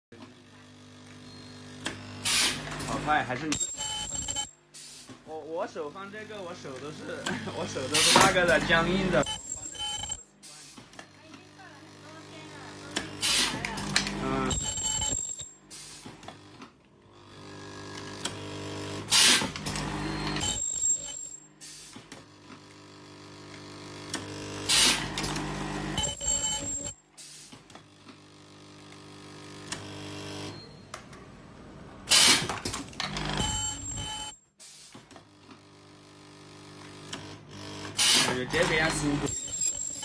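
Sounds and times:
welding machine hum and burst: 0:00.8 - 0:03.2, 0:11.5 - 0:16.6, 0:17.2 - 0:20.6, 0:21.6 - 0:26.0, 0:27.2 - 0:30.5, 0:32.1 - 0:33.4, 0:34.6 - 0:39.8.

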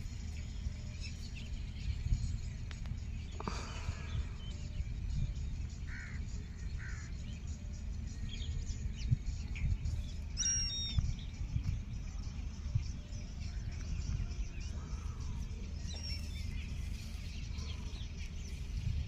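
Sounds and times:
steady low rumble: 0:00.0 - 0:19.0
high bird chirps: 0:09.0 - 0:11.8, 0:13.5 - 0:18.9.

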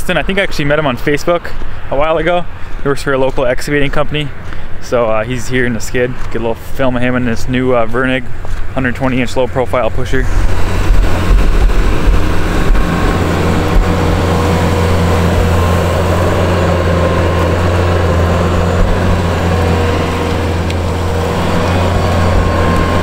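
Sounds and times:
diesel engine running under load: 0:08.2 - 0:23.0
snow being pushed: 0:10.2 - 0:23.0.

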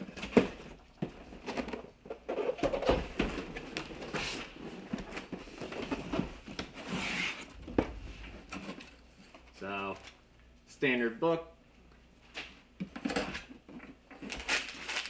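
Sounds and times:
cardboard lid hissing rub: 0:06.8 - 0:07.5.

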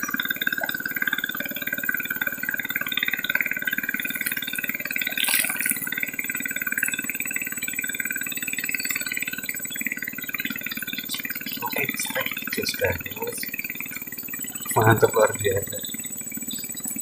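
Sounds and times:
small engine running: 0:00.0 - 0:17.0
high wavering chirping: 0:08.8 - 0:17.0.

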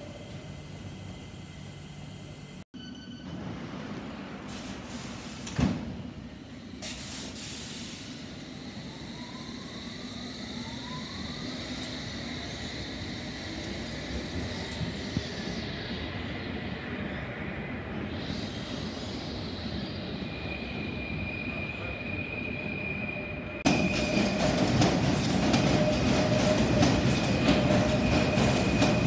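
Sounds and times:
train doors closing thud: 0:05.4 - 0:06.0
train rumbling: 0:23.3 - 0:29.0.

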